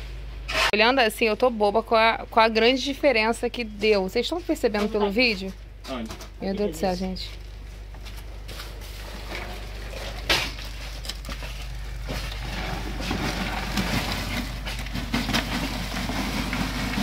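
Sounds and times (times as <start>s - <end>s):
wet concrete scraping and sliding: 8.4s - 17.0s
plastic bucket knocking down: 12.0s - 17.0s.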